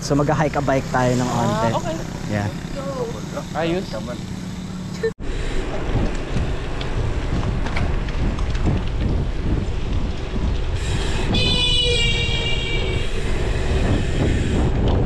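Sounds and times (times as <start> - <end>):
bike tyres rolling on pavement: 4.2 - 15.0
wind buffeting microphone: 5.2 - 15.0.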